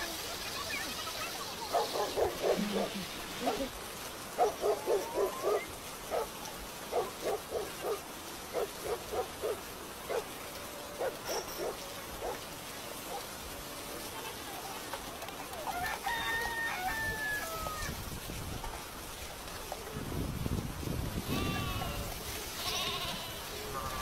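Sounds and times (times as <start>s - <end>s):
rain hissing: 0.0s - 24.0s
dog barking: 1.7s - 3.7s, 4.4s - 6.3s, 6.9s - 10.3s, 11.0s - 12.4s.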